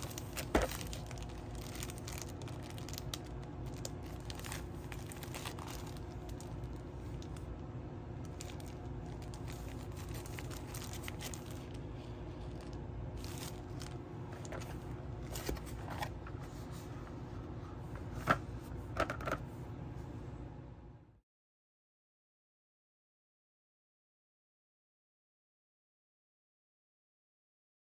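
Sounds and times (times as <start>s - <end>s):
plastic packaging crinkling: 0.0s - 7.6s, 8.2s - 16.8s
low background hum: 0.0s - 21.2s.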